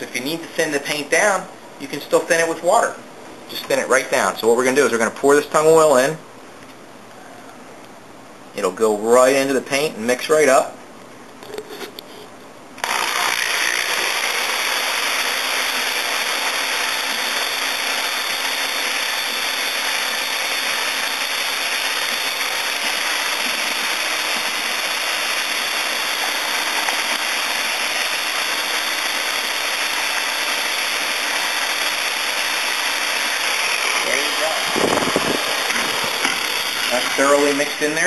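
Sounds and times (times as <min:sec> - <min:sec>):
electric drill mixing paint: 0:12.8 - 0:38.0.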